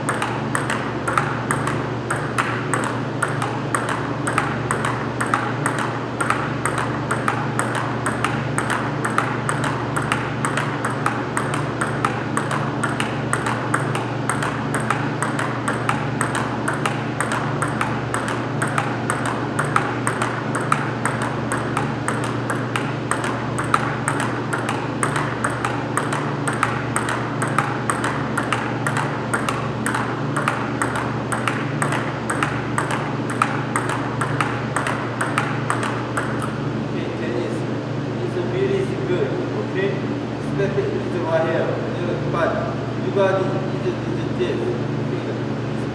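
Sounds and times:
table tennis ball clicks: 0:00.0 - 0:36.6.

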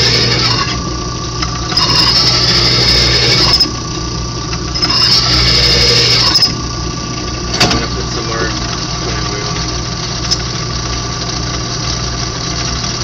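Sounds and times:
drill bit squealing in steel: 0:00.0 - 0:00.8, 0:01.7 - 0:03.8, 0:04.7 - 0:06.6
drill press motor running: 0:00.0 - 0:13.0.

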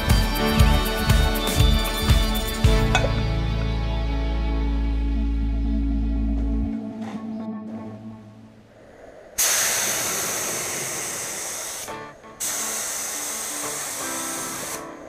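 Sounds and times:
spray gun hissing: 0:09.4 - 0:15.0.

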